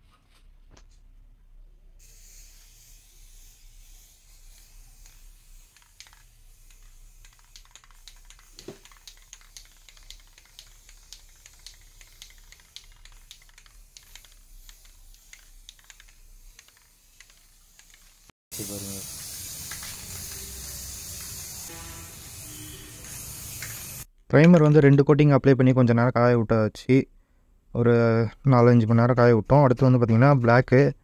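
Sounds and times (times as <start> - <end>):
aerosol spray can hissing: 2.0 - 24.1.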